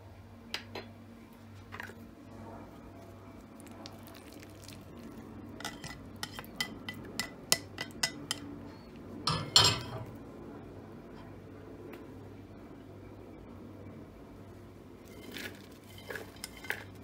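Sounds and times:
spatula clinking on ceramic plate: 0:05.6 - 0:08.4, 0:09.3 - 0:10.1.

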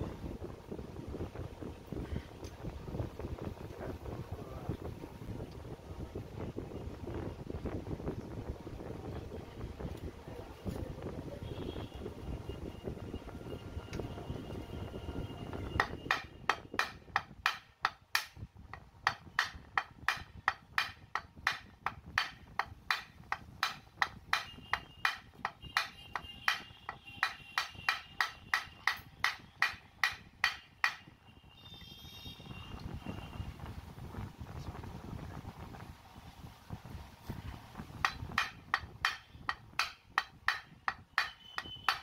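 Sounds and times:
wood knocking on metal: 0:15.6 - 0:31.1, 0:38.0 - 0:42.0.

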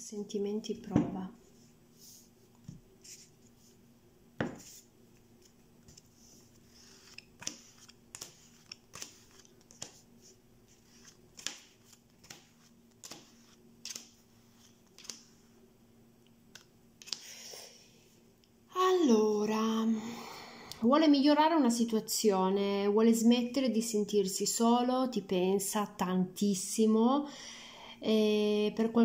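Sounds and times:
playing cards snapping on table: 0:15.0 - 0:15.3.

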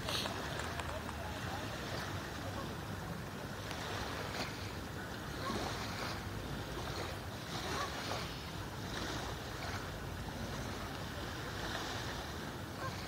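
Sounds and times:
waves lapping at shoreline: 0:00.0 - 0:13.0.

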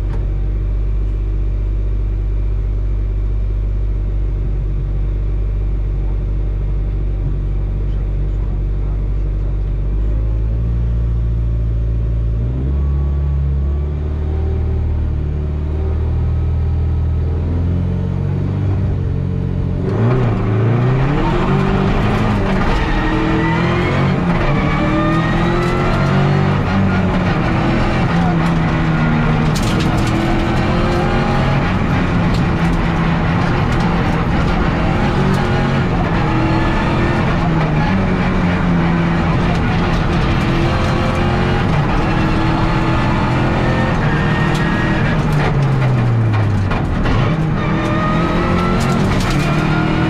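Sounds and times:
rally car engine revving: 0:05.8 - 0:50.0.

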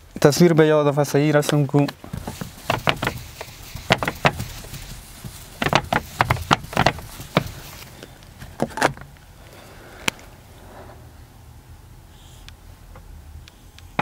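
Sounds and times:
eraser wiping whiteboard: 0:02.2 - 0:07.9.

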